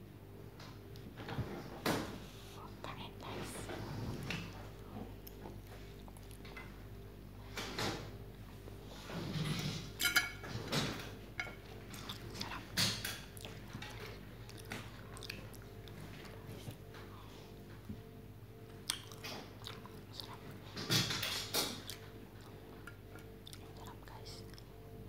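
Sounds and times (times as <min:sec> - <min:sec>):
faint steady hum: 0:00.0 - 0:25.0
person chewing: 0:04.8 - 0:06.4, 0:11.8 - 0:16.9, 0:18.7 - 0:20.5, 0:21.6 - 0:25.0
wet mouth clicks and smacks: 0:18.8 - 0:20.4.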